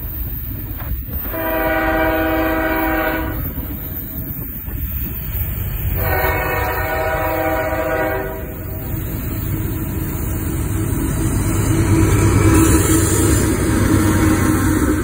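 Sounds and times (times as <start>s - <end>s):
locomotive engine rumble: 0.0s - 15.0s
locomotive air horn blast: 1.2s - 3.6s, 5.9s - 8.8s.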